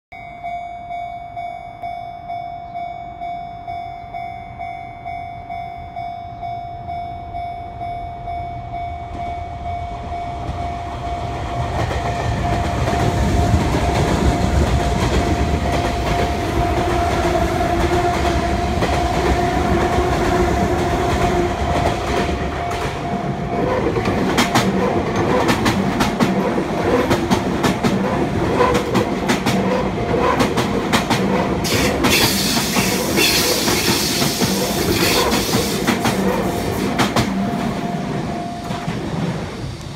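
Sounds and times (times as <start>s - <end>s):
level crossing bell dinging: 0.1s - 11.2s
electric train rumbling past: 0.2s - 39.9s
train wheels clacking on rail joints: 11.6s - 39.9s.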